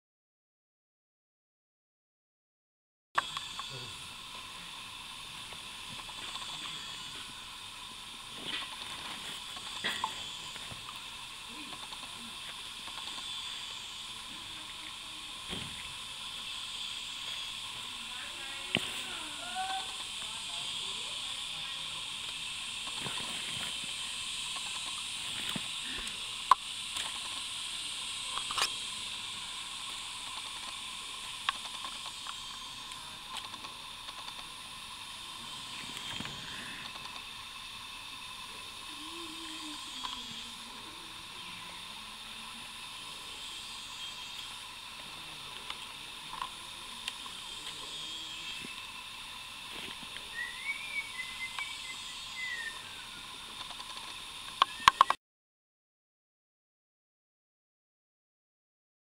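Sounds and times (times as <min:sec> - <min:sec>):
steady high hiss: 0:03.2 - 0:55.2
turtle shells clicking and knocking: 0:10.8 - 0:13.4, 0:29.8 - 0:34.7, 0:35.9 - 0:38.4, 0:53.5 - 0:55.2.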